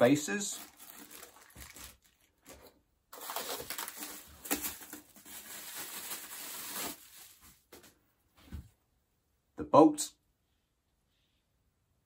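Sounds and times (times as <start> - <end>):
plastic wrapping crinkling: 0.0 - 7.9.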